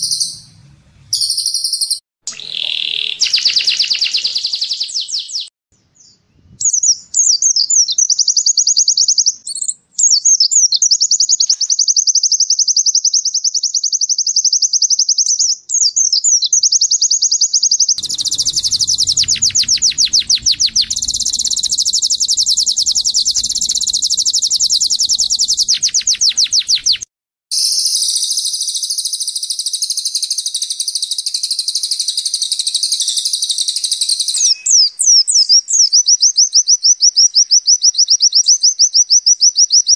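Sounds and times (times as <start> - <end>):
songbirds trilling: 0.0 - 5.5, 18.0 - 27.0.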